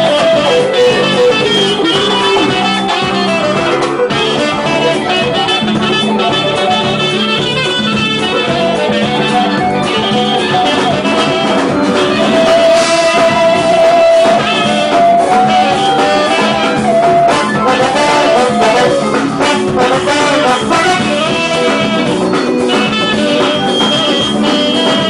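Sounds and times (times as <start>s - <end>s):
band accompaniment: 0.0s - 25.0s
saxophone melody: 0.0s - 25.0s.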